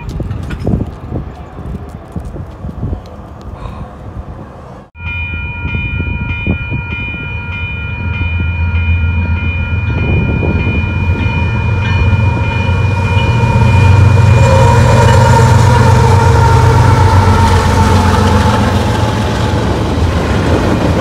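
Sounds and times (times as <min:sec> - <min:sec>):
railroad crossing bell ringing: 0:05.0 - 0:19.3
locomotive engine rumble: 0:07.2 - 0:21.0.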